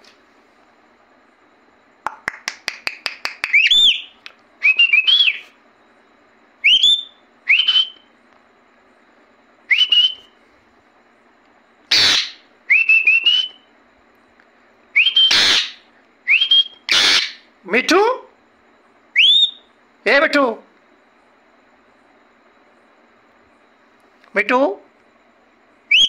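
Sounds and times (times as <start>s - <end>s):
parakeet clicks: 2.1s - 4.4s
parakeet whistles: 3.4s - 5.6s, 6.6s - 8.1s, 9.7s - 10.4s, 11.9s - 13.7s, 15.0s - 17.5s, 19.1s - 19.7s
parakeet screeches: 11.9s - 12.5s, 15.0s - 15.8s, 16.8s - 17.5s.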